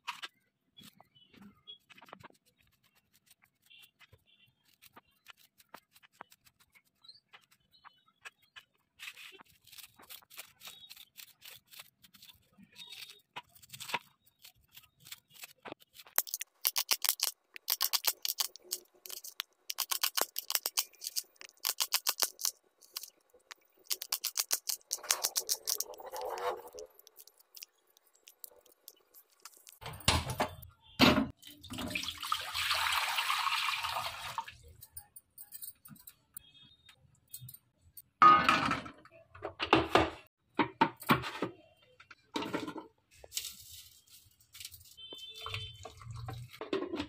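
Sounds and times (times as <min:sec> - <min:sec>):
knife scraping through vegetables: 0:09.0 - 0:29.8.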